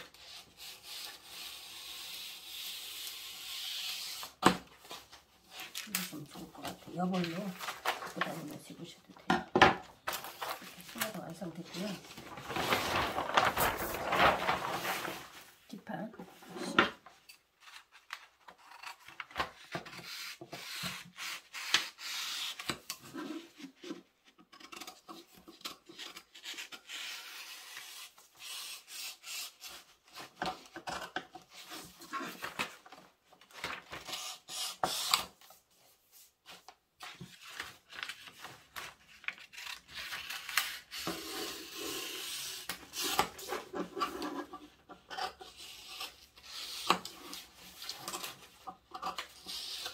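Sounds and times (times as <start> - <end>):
shears cutting paper: 5.5 - 8.8, 17.7 - 23.7, 37.2 - 44.5
paper sliding on table: 12.1 - 15.5.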